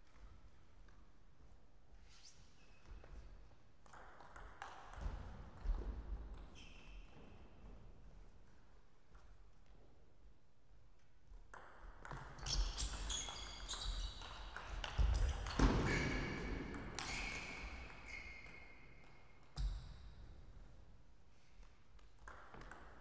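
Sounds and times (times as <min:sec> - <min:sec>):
shoes squeaking on floor: 0:12.4 - 0:14.4, 0:15.1 - 0:19.0.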